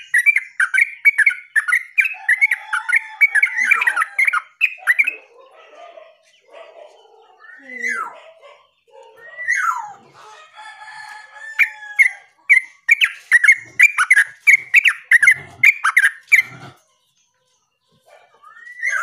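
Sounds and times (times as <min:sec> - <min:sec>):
bird chattering notes: 0:00.0 - 0:02.6, 0:12.5 - 0:16.8.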